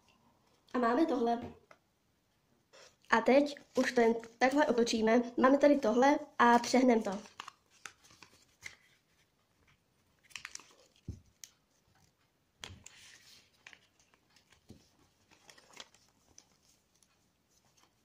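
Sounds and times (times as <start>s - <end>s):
paper rustling and crinkling: 3.6s - 4.9s, 6.5s - 18.0s.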